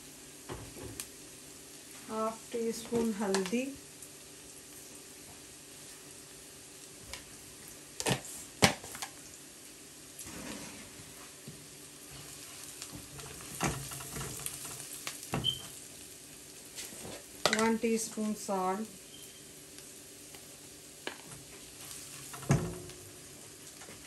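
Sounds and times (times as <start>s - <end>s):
onions sizzling in oil: 0.0s - 24.0s
spatula scraping pan: 10.2s - 11.2s.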